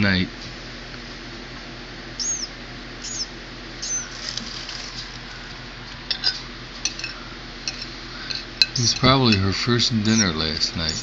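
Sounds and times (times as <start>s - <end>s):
nestling bird peeping: 2.1s - 5.5s, 9.8s - 11.0s.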